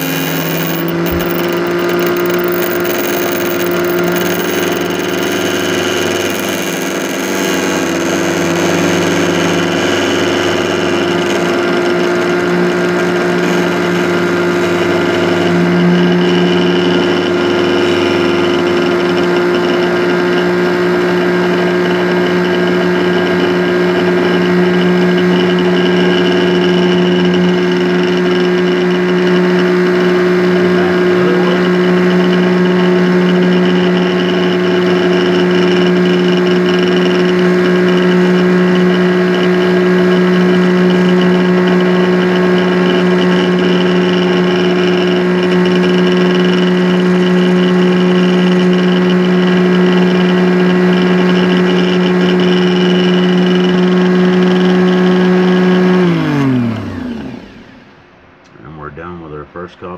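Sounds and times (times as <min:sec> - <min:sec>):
key duplicating machine humming: 0:00.0 - 0:15.6.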